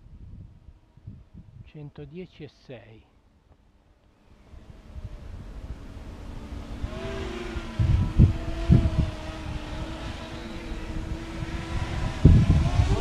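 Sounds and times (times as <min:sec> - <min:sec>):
racing drone buzzing: 0:04.2 - 0:13.0
wind thumps on microphone: 0:07.7 - 0:10.0, 0:10.9 - 0:13.0.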